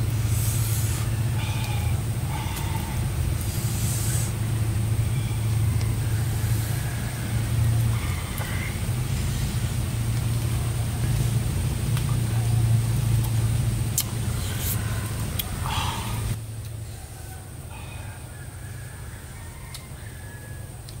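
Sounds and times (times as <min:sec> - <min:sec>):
high-pitched steady whine: 0:00.0 - 0:11.4
steady low hum: 0:00.0 - 0:21.0.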